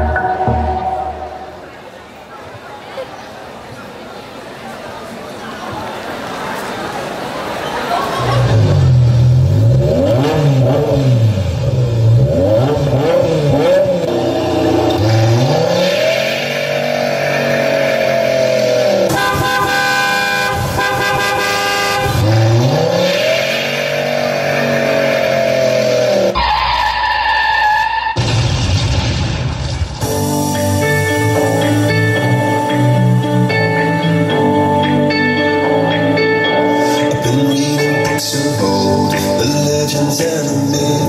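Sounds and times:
horn-like blare: 0:00.0 - 0:01.8, 0:19.1 - 0:23.0
car engines revving: 0:06.0 - 0:28.4.

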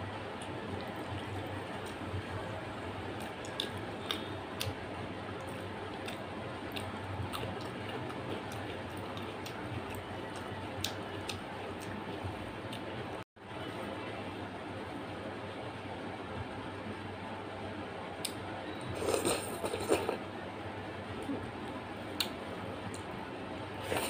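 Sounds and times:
wet chewing and mouth smacks: 0:03.2 - 0:04.8.

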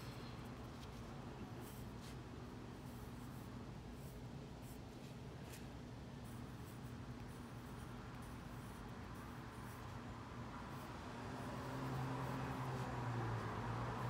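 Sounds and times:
pencil scratching on paper: 0:01.6 - 0:10.0.

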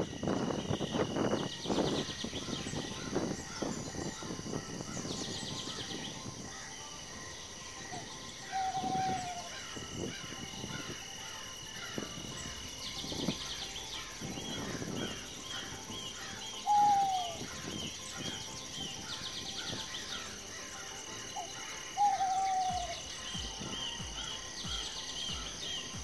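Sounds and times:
birds calling and trilling: 0:00.0 - 0:26.0
whistled bird call falling: 0:07.9 - 0:10.9, 0:12.4 - 0:20.4, 0:21.4 - 0:26.0.

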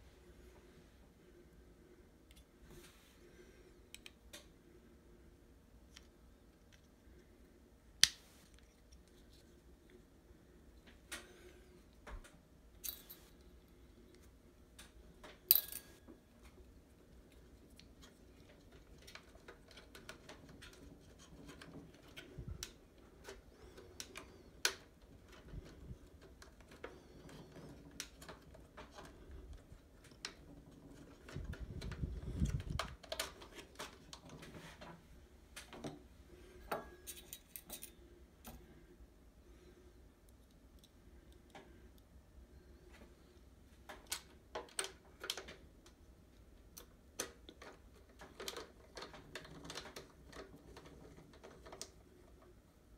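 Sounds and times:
low rumble of handling: 0:25.2 - 0:38.9.

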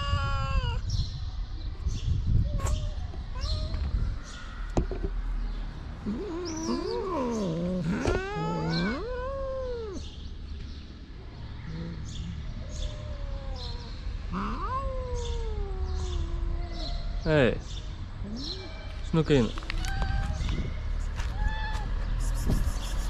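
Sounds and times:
cats meowing: 0:00.0 - 0:01.0, 0:02.4 - 0:04.4, 0:06.0 - 0:10.3, 0:11.4 - 0:17.4, 0:18.2 - 0:22.1.

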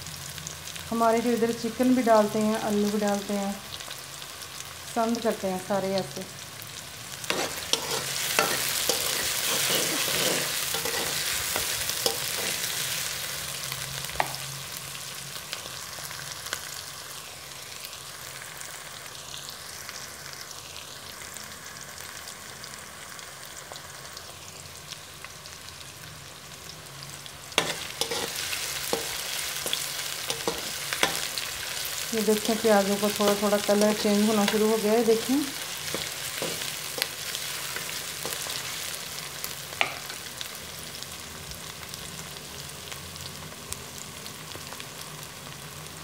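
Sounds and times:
onions sizzling in hot oil: 0:00.0 - 0:46.0
spoon scraping a metal pan: 0:07.2 - 0:13.0, 0:27.6 - 0:31.4, 0:34.2 - 0:38.7.

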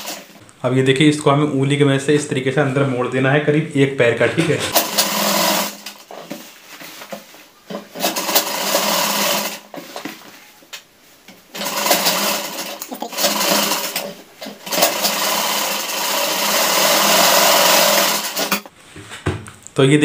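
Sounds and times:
sewing machine stitching: 0:00.0 - 0:00.4, 0:04.7 - 0:06.2, 0:07.7 - 0:09.8, 0:11.5 - 0:18.7.

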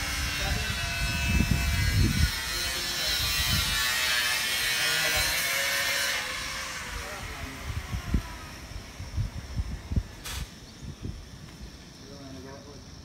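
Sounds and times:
power tool whining: 0:00.0 - 0:10.3.

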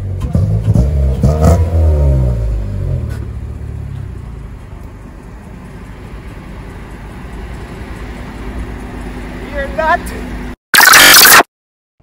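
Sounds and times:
car exhaust revving and idling: 0:00.0 - 0:09.3.

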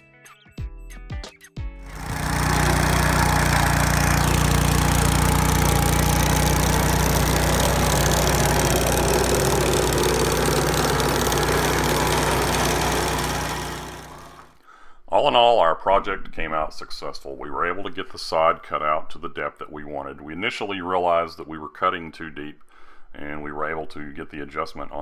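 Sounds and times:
small engine running under load: 0:01.9 - 0:14.6.

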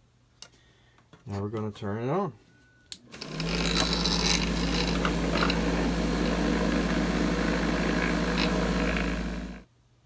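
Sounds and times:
motor hum: 0:03.1 - 0:09.6.

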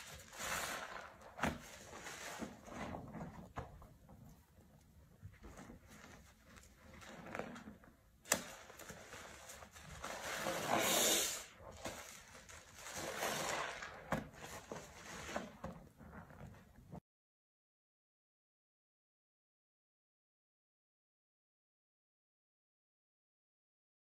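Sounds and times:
sponge squelching in soapy water: 0:00.0 - 0:17.0.

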